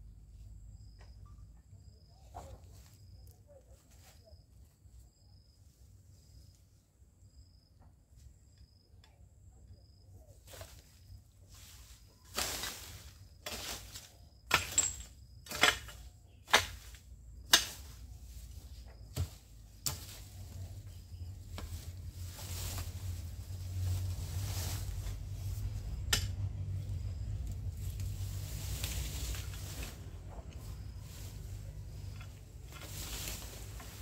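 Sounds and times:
hoe chopping into ground: 12.3s - 18.0s, 19.0s - 20.3s
steady low rumble: 20.3s - 34.0s.

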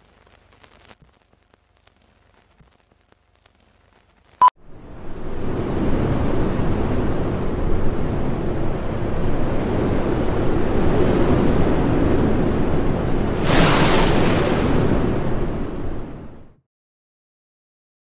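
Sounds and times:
rushing wind-like noise: 4.6s - 16.6s
bright hissing whoosh: 13.3s - 15.3s.

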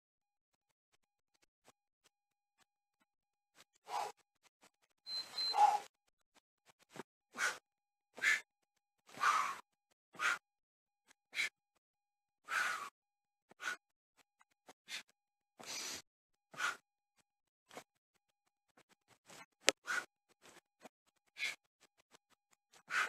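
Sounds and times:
man breathing hard: 7.3s - 7.6s, 8.2s - 8.5s, 9.1s - 10.4s, 12.4s - 13.0s, 13.6s - 13.8s, 14.9s - 16.8s, 22.7s - 23.0s.

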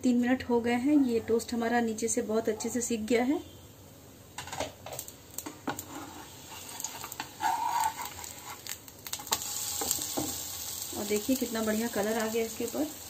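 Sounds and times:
sizzling in a pan: 4.3s - 13.0s
metal spatula scraping a pan: 5.6s - 10.4s.

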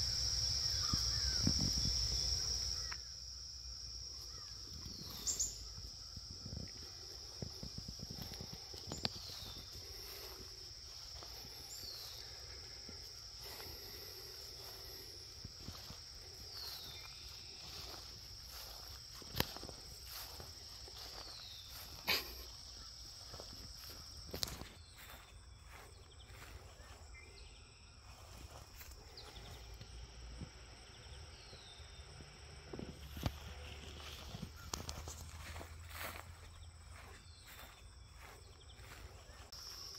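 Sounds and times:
crickets trilling: 0.0s - 39.9s
soft footsteps: 4.2s - 27.0s, 32.8s - 39.9s.

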